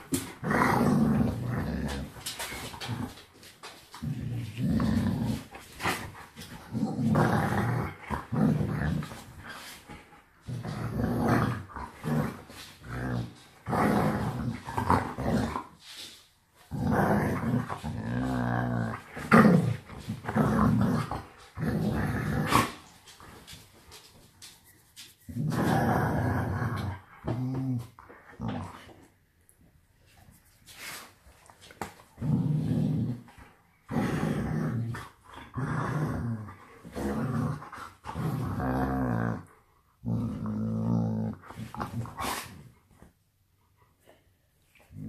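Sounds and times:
dog and wolf growling: 0.0s - 3.2s, 4.0s - 9.7s, 10.4s - 15.8s, 16.7s - 22.9s, 25.3s - 29.1s, 32.2s - 42.7s.

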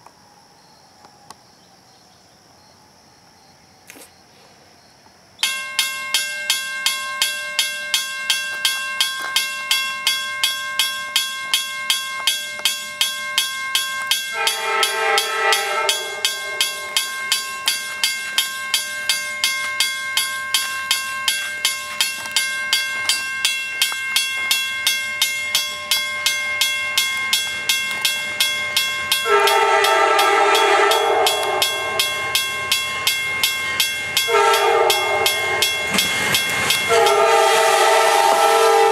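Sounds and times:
crossing bell ringing: 5.4s - 38.9s
train horn blasts: 14.3s - 17.0s, 29.2s - 32.1s, 34.2s - 35.7s, 36.9s - 38.9s.

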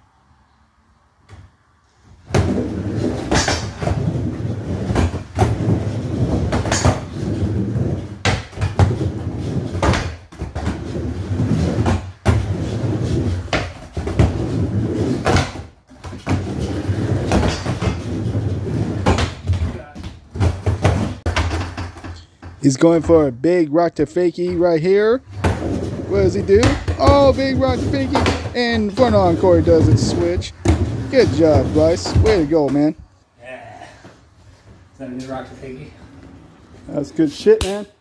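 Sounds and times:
skateboard wheels rolling on wood ramp: 2.0s - 23.3s, 24.2s - 33.0s.

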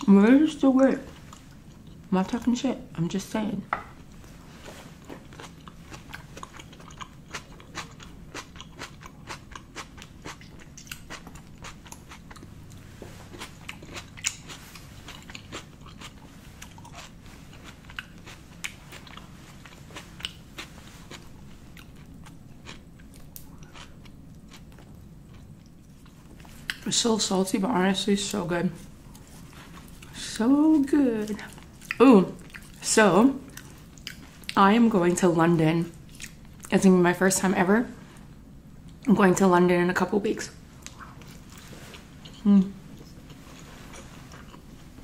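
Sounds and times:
wet chewing: 4.6s - 26.9s, 31.2s - 32.9s, 33.5s - 34.6s.

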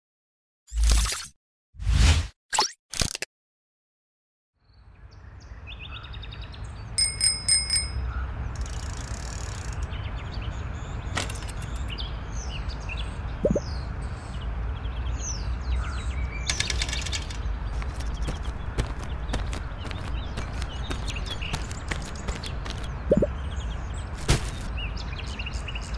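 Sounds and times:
birds chirping: 4.6s - 25.9s
bicycle bell ringing: 7.0s - 8.1s.

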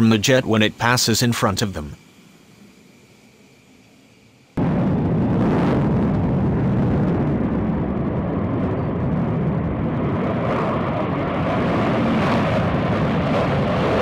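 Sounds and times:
jet engine roar: 4.5s - 14.0s.

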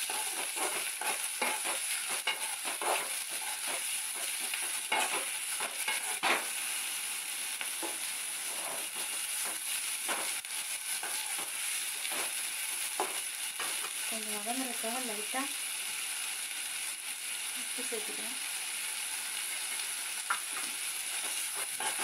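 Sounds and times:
spoon scraping and knocking pan: 0.0s - 6.6s, 7.6s - 14.1s, 19.5s - 22.0s
vegetables sizzling in oil: 0.0s - 22.0s.

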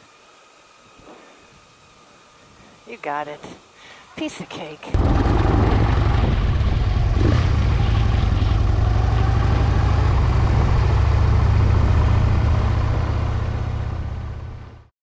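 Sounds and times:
motorcycle engine rumbling: 5.0s - 14.9s.

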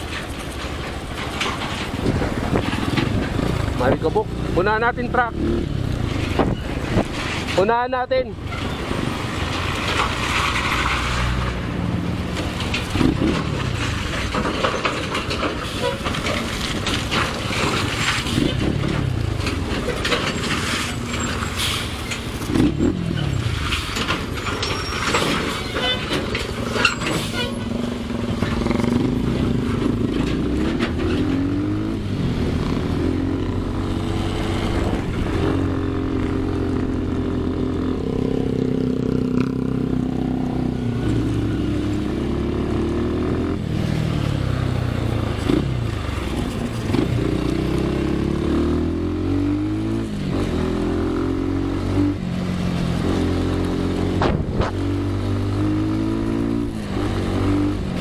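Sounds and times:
knocks and rattles: 0.0s - 5.3s, 8.4s - 42.0s
motorcycle engine accelerating: 2.1s - 7.0s, 28.0s - 58.0s.

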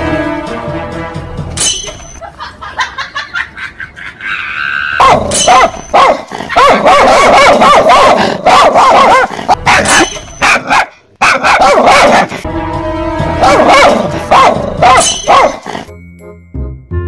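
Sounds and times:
background music: 0.0s - 3.4s, 8.7s - 17.0s
fake dog barking: 4.9s - 12.5s, 13.4s - 15.9s.

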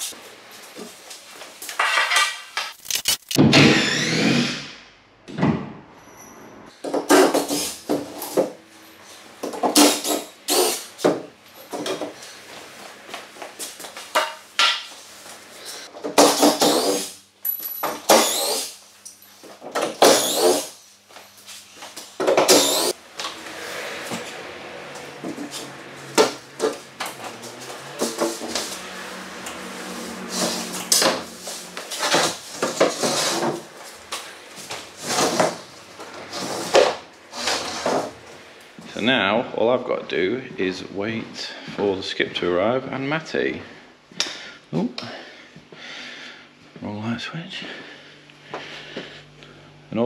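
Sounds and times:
wood squeaking: 3.5s - 4.6s.

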